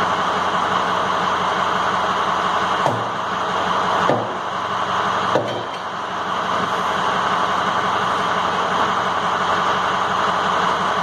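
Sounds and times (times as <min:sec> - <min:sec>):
steady mechanical running noise: 0:00.0 - 0:11.0
sledgehammer striking metal: 0:02.8 - 0:03.3, 0:04.0 - 0:04.5, 0:05.2 - 0:06.0.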